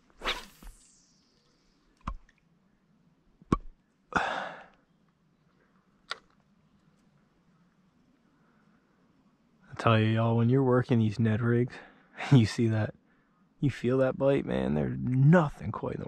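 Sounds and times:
fishing rod swish: 0.0s - 1.0s.

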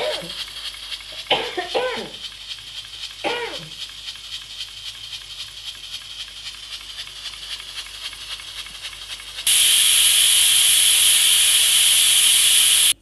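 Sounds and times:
pressure cooker ticking: 0.0s - 13.0s
steam blasting loud hiss: 0.0s - 13.0s
faint valve hiss: 6.6s - 13.0s.

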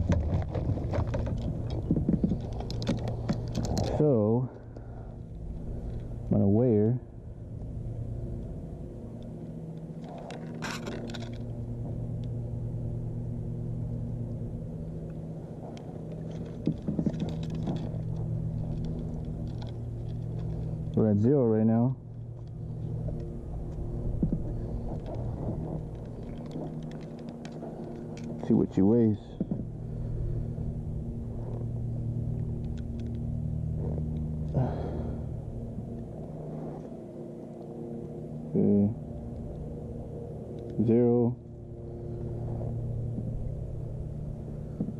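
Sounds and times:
handling rustle: 0.0s - 6.2s, 9.2s - 12.1s, 15.1s - 21.0s, 22.0s - 38.2s
engine droning: 0.0s - 44.9s
low motor hum: 0.0s - 44.9s.

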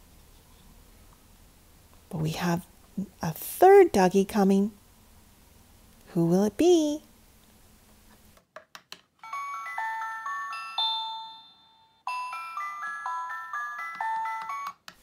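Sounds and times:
toy chiming tune: 9.2s - 14.8s.

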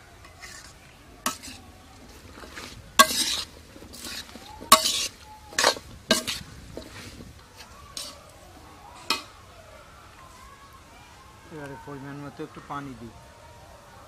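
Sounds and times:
metal spoon scraping metal pan: 0.2s - 7.2s, 7.9s - 8.2s.

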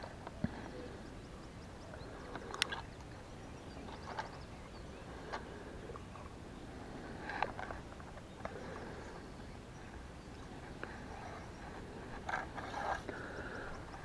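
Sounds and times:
low background rumble: 0.0s - 14.0s.

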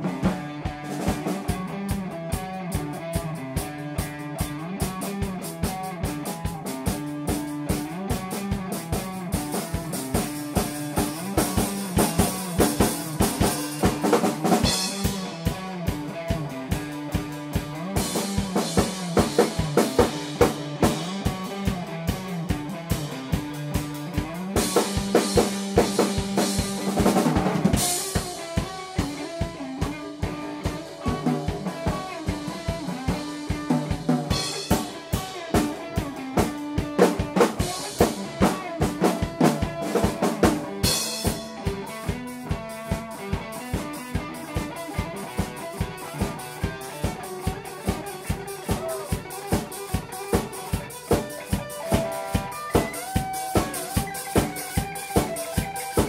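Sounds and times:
drum kit beat: 0.0s - 56.0s
electric guitar: 0.0s - 56.0s
keyboard notes: 51.1s - 56.0s.

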